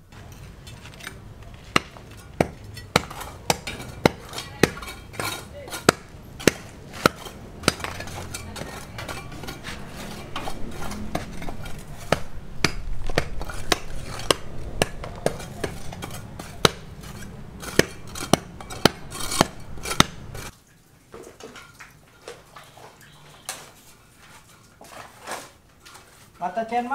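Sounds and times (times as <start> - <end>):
hammer striking steel chisel: 0.7 - 20.5.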